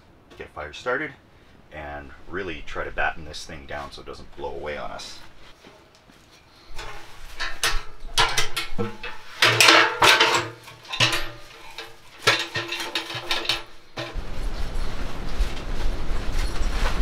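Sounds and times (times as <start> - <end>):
metal clanks and scrapes: 5.5 - 14.2.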